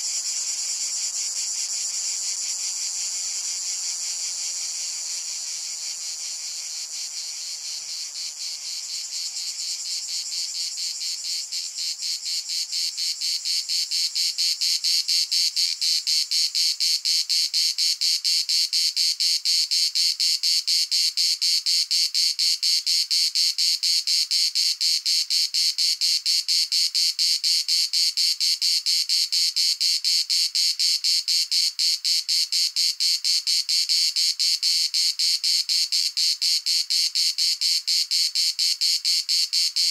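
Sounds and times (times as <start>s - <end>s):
insect chirring trill: 0.0s - 21.6s.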